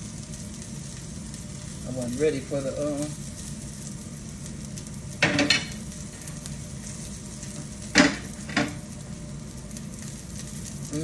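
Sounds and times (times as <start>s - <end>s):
garlic sizzling in oil: 0.0s - 11.0s.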